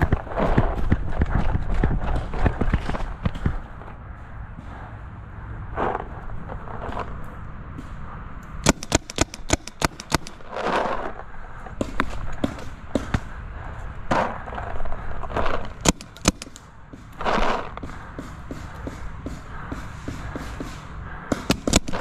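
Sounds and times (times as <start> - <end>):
paintball markers firing: 8.6 - 11.1, 11.7 - 13.4, 14.1 - 22.0.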